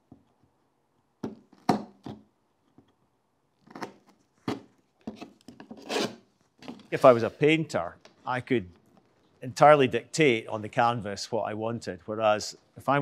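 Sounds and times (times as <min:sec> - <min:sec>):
blade scraping wood: 0:05.7 - 0:06.2, 0:06.9 - 0:07.5.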